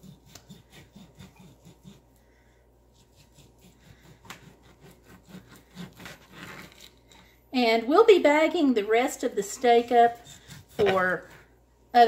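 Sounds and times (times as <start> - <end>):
knife sawing through steak: 0.0 - 2.2, 2.8 - 6.8, 10.0 - 11.0.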